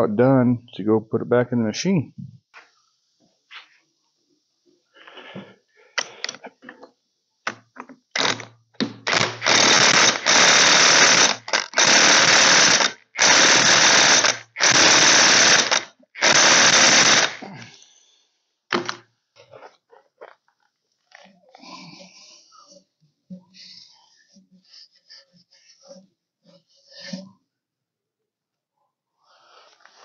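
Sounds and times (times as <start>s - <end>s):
impact wrench hammering: 8.2s - 17.4s.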